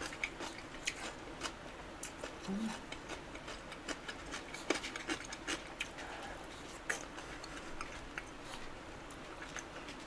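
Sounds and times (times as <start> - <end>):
mouth chewing clicks and smacks: 0.0 - 6.0.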